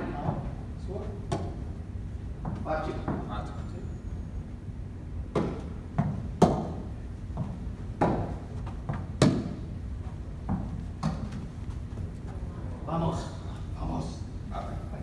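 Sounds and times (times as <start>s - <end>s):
tennis racquets hitting balls: 0.0s - 1.8s, 2.4s - 3.3s, 5.2s - 12.4s
tennis ball bouncing: 5.3s - 9.7s, 10.4s - 11.5s.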